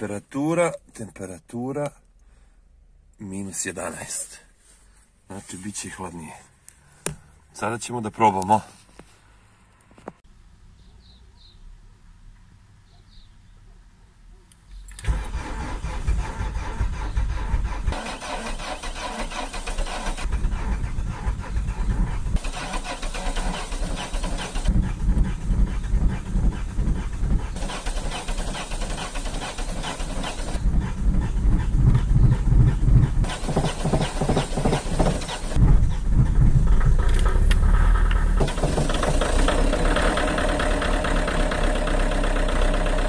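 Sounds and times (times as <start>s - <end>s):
car engine starting and idling: 14.9s - 43.0s.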